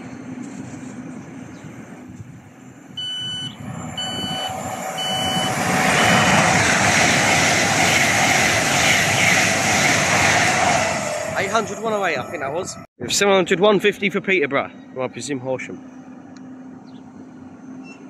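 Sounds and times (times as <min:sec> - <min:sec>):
electric train running: 0:01.9 - 0:12.8
door-warning beeps: 0:03.0 - 0:06.5.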